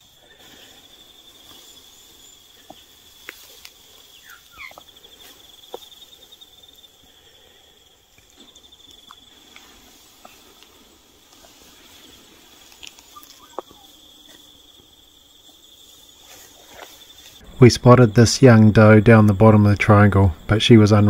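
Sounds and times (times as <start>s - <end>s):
insect trilling: 0.0s - 21.0s
footsteps through grass: 0.1s - 6.9s, 8.2s - 17.6s.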